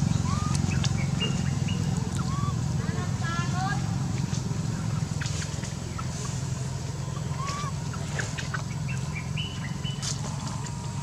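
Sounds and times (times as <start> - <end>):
high-pitched peeps and chirps: 0.0 - 2.6, 7.0 - 10.2.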